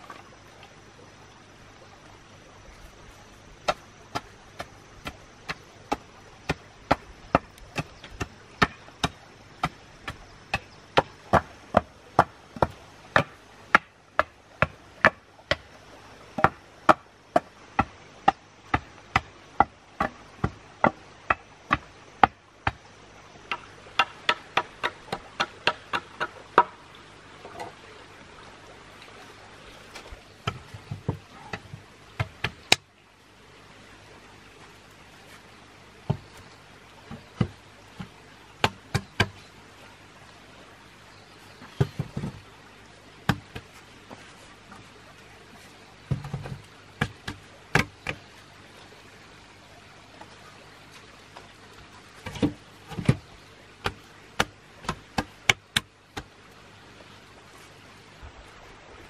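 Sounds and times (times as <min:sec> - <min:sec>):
knife chopping wood: 0:03.6 - 0:15.7, 0:16.4 - 0:22.8, 0:37.1 - 0:39.4, 0:43.3 - 0:43.7, 0:46.1 - 0:48.2, 0:53.8 - 0:56.3.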